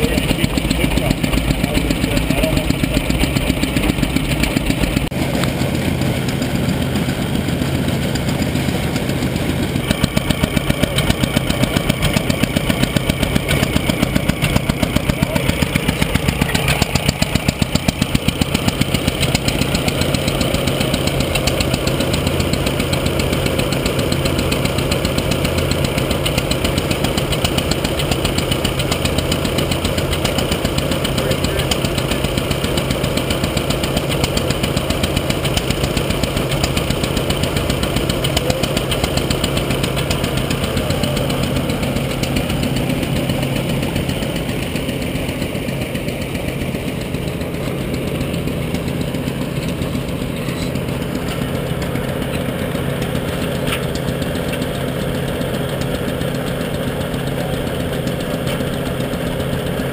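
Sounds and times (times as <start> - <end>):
machinery clatter: 0.0 - 59.9
tractor engine beating steadily: 0.0 - 59.9.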